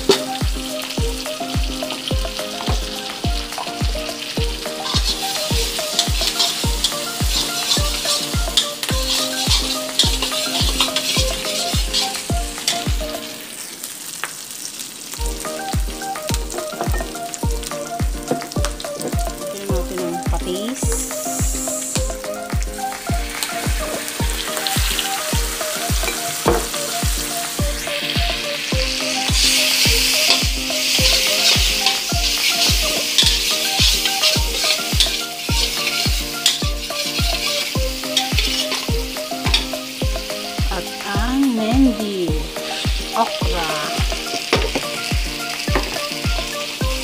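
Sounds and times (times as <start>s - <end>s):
background music with beat: 0.0s - 13.5s, 15.2s - 47.0s
food sizzling in a wok: 0.0s - 47.0s
metal spatula stirring: 4.8s - 12.8s, 30.2s - 38.9s.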